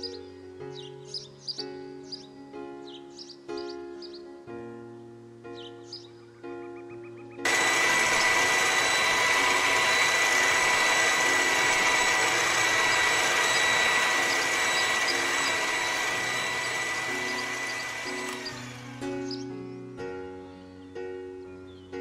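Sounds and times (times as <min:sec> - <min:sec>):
toy mixer grinder whining: 0:07.4 - 0:19.5.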